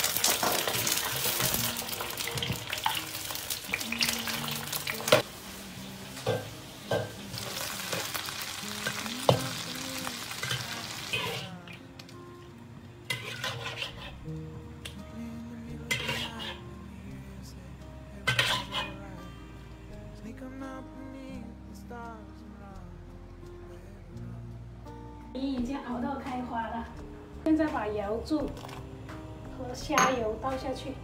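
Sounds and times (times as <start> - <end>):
frying in hot oil sizzle: 0.0 - 11.6
metal spatula scraping wok: 10.4 - 11.5, 13.1 - 14.3, 15.9 - 16.7, 18.3 - 19.0.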